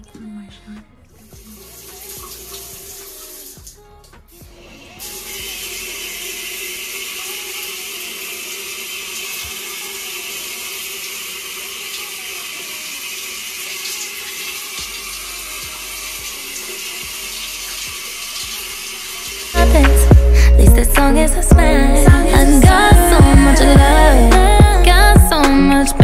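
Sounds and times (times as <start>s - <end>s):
shower water running: 1.2s - 21.0s.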